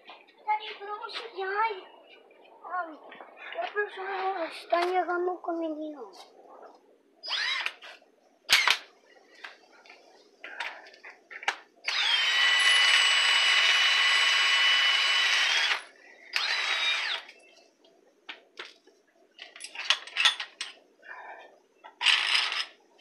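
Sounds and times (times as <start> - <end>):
impact wrench motor whirring: 7.2 - 7.8, 11.8 - 17.3.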